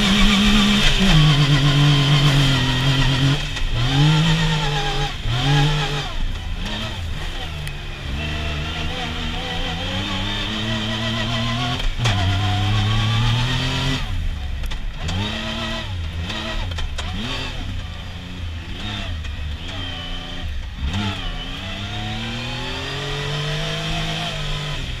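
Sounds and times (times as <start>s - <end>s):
engine revving: 0.0s - 25.0s.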